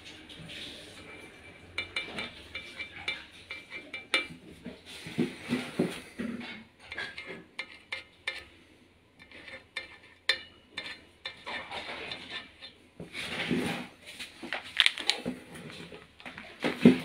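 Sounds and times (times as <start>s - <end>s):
marker scratching on steel: 9.2s - 10.2s.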